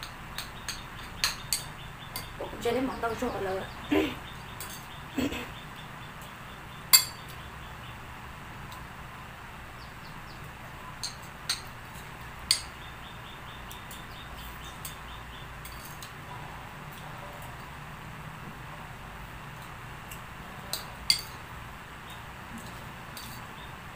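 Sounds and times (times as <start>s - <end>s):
metal spoon clinking on plate: 0.0s - 2.4s, 4.6s - 4.9s, 6.9s - 7.3s, 11.0s - 12.7s, 15.6s - 16.1s, 20.6s - 21.4s, 22.6s - 23.5s
low background noise: 0.0s - 23.9s.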